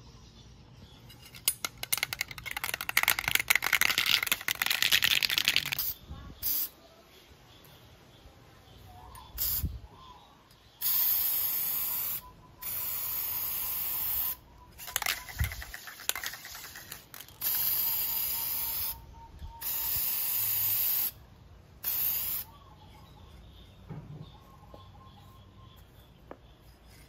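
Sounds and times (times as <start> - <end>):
aerosol can shaken clicking: 1.4 - 6.0, 14.8 - 17.7
aerosol can spraying: 19.6 - 21.2, 21.8 - 22.5.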